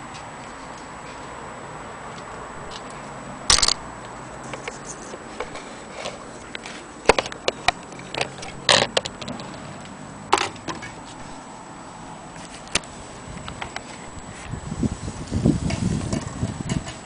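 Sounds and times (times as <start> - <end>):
clock movement clicks and knocks: 3.5 - 3.8.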